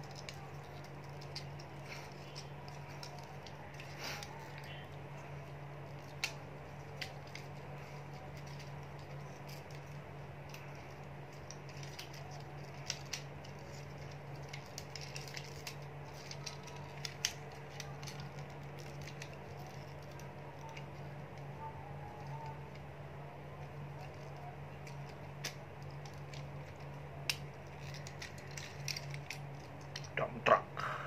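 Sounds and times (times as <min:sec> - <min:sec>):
steady low hum: 0:00.0 - 0:31.0
plastic toy joints clicking: 0:05.9 - 0:21.0, 0:23.6 - 0:30.2.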